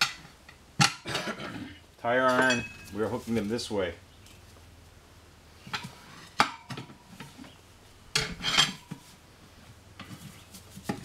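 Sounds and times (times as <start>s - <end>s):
tire irons clinking on wheel rim: 0.0s - 3.2s
metal scraping rattle: 8.1s - 9.1s.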